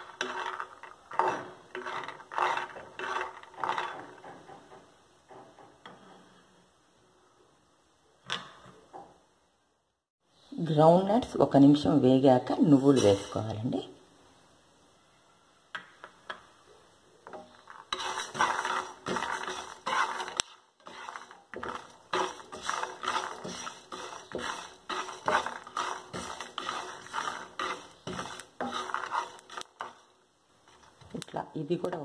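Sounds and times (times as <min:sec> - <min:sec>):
seeds roasting in a pan: 0:00.0 - 0:05.4, 0:12.7 - 0:14.0, 0:17.2 - 0:32.0.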